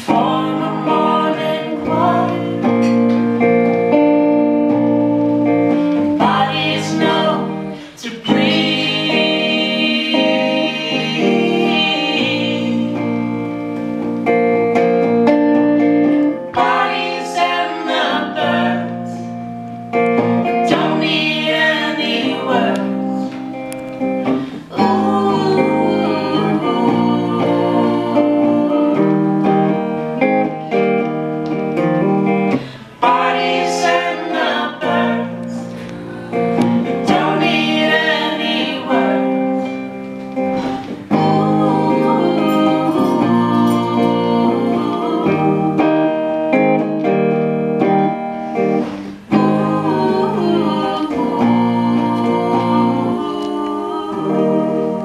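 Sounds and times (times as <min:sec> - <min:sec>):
voices singing together: 0:00.0 - 0:14.4, 0:15.7 - 0:31.1, 0:31.7 - 0:47.3, 0:48.5 - 0:55.0
plucked acoustic guitar: 0:00.0 - 0:55.0.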